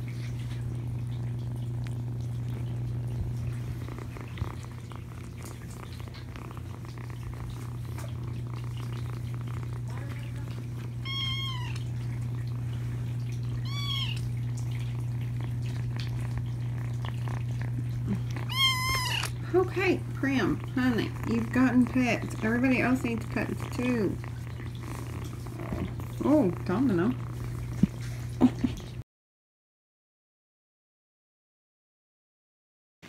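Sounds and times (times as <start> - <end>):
kittens purring: 0.0 - 29.0
kitten meows: 11.0 - 11.9, 13.6 - 14.3, 18.1 - 19.4.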